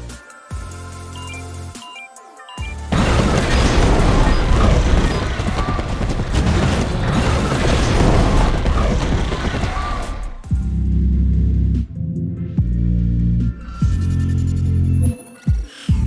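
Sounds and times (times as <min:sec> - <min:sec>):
film music: 0:00.0 - 0:16.0
crackling and impacts: 0:02.9 - 0:10.5.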